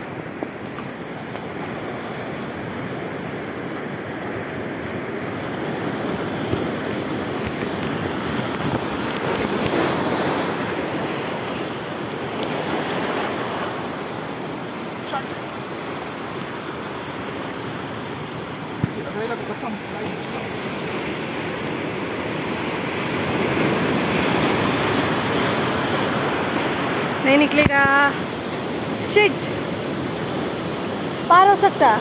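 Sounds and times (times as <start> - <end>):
wind on microphone: 0.0 - 14.9
surf washing over rocks: 0.0 - 32.0.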